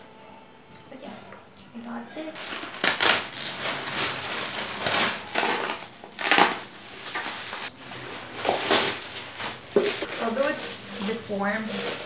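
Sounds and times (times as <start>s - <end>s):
plastic and bubble wrap crinkling: 2.3s - 12.0s.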